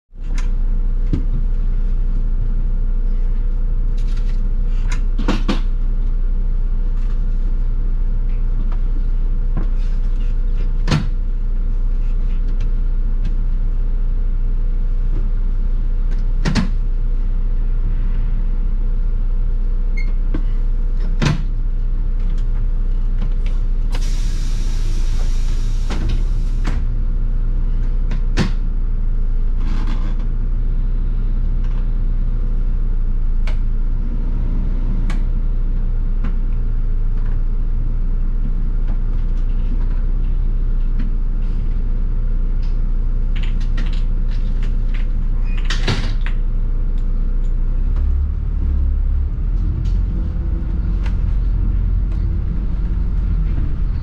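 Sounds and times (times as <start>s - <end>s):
bus diesel engine running: 0.1s - 54.0s
air hiss: 24.0s - 26.6s.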